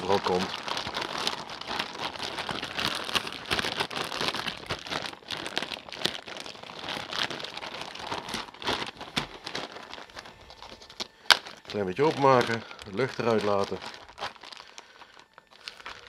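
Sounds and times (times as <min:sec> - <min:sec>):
plastic bag crinkling: 0:00.0 - 0:16.0.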